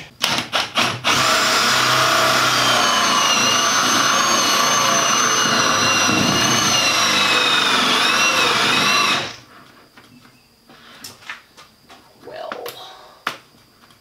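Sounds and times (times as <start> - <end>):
cordless drill whining under load: 0.2 - 9.5.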